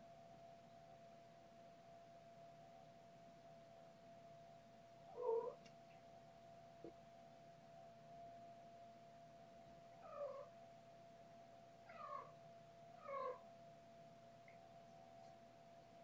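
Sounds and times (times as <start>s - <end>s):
faint high tone hum: 0.0s - 16.0s
kitten mewing: 5.1s - 5.6s, 13.0s - 13.4s.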